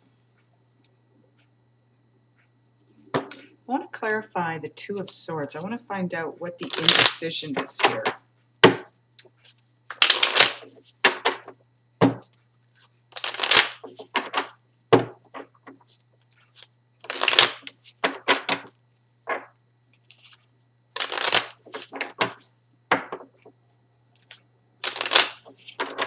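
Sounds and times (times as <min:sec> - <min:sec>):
faint low hum: 0:00.0 - 0:09.9
cards being shuffled: 0:06.6 - 0:08.0, 0:09.2 - 0:14.5, 0:15.3 - 0:22.5, 0:24.1 - 0:26.0.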